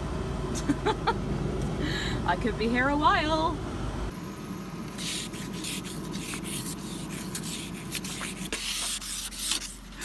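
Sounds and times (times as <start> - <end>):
ice scraper scraping frost off glass: 5.0 - 10.0.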